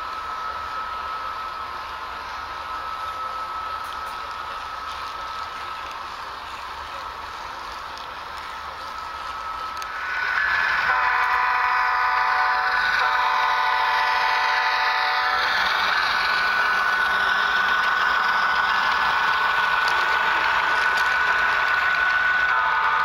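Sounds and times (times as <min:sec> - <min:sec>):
model train running with whine: 0:00.0 - 0:23.0
model locomotive air horn: 0:09.4 - 0:17.7, 0:22.1 - 0:23.0.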